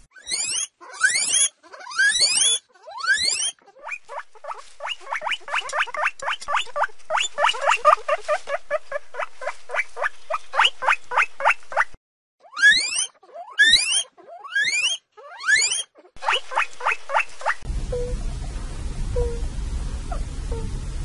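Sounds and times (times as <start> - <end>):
hamster squeaking: 0.1 - 18.1
faint hiss: 17.3 - 21.0.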